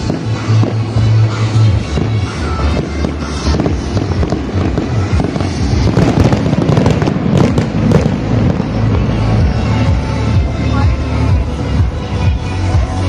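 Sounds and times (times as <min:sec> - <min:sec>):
fireworks bursting and crackling: 0:00.0 - 0:13.0
loud music with deep bass: 0:00.0 - 0:13.0.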